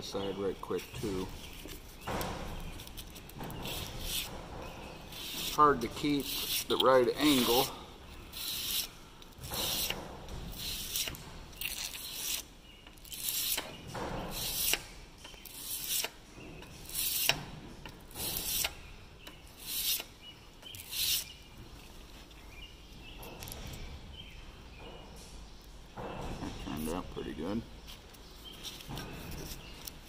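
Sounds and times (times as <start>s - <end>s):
metal blade rasping on abrasive paper: 3.6s - 4.3s, 5.1s - 7.7s, 8.3s - 8.9s, 9.5s - 13.7s, 14.3s - 14.8s, 15.5s - 16.1s, 16.8s - 17.3s, 18.2s - 18.8s, 19.6s - 20.1s, 20.8s - 21.3s.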